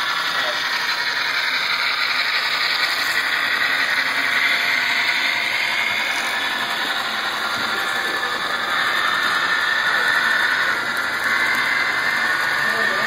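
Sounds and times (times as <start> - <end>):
locomotive motors humming: 0.0 - 13.0
model train wheels clattering: 0.0 - 13.0.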